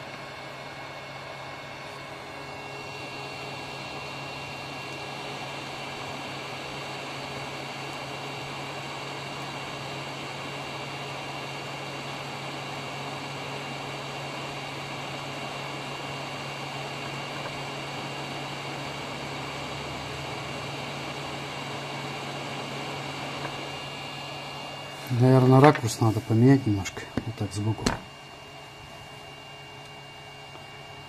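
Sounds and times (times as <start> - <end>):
hot-air fan hiss: 0.0 - 31.0.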